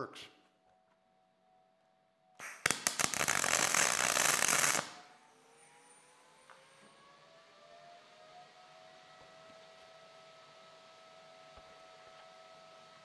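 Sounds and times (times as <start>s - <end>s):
welding arc crackling: 2.4s - 5.0s
faint rising whine: 3.2s - 13.0s.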